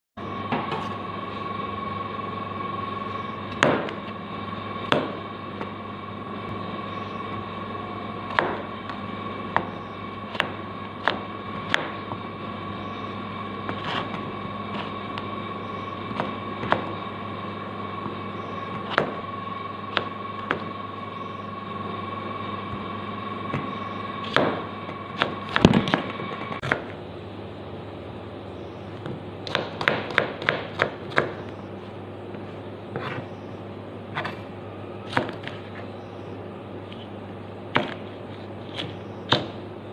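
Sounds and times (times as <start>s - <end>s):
steady hum: 0.2s - 39.9s
knife chopping on wooden board: 8.3s - 8.7s, 9.5s - 12.0s, 18.7s - 19.2s, 29.4s - 31.3s, 37.7s - 38.0s.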